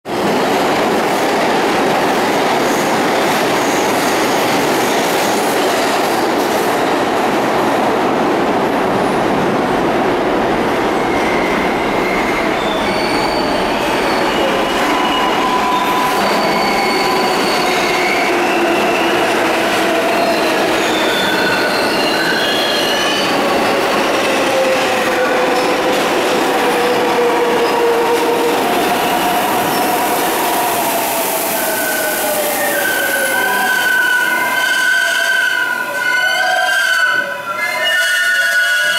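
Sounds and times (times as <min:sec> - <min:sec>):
subway train rumbling and rattling: 0:00.0 - 0:38.9
train wheel squeals: 0:11.0 - 0:24.8, 0:31.5 - 0:38.9.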